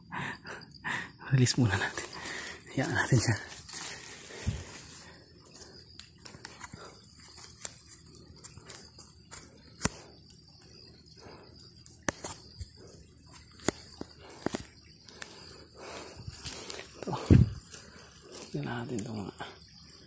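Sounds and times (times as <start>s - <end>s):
insects droning: 0.0s - 20.0s
twigs snapping: 1.9s - 19.1s
footsteps crunching on dry leaves: 2.0s - 5.1s.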